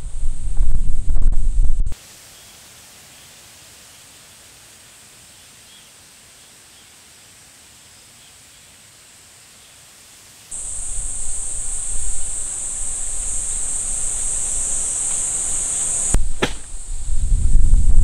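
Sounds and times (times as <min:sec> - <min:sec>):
wind rumbling on microphone: 0:00.0 - 0:02.0, 0:10.6 - 0:18.0
insects droning: 0:02.3 - 0:18.0.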